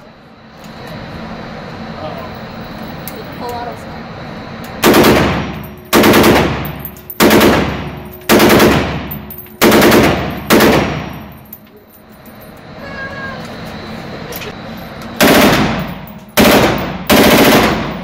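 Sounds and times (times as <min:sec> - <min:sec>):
rifle firing full-auto bursts: 0:04.8 - 0:11.2, 0:15.2 - 0:18.0.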